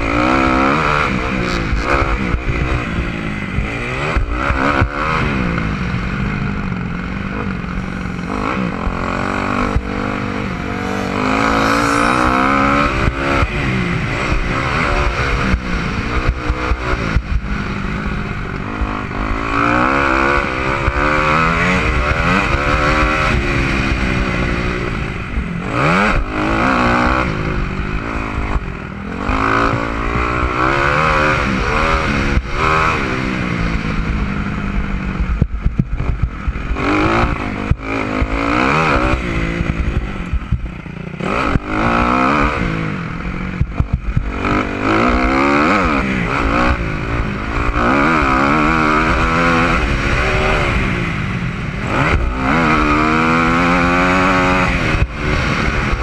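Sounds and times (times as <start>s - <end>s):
dirt bike engine revving: 6.7s - 17.7s, 44.1s - 56.0s.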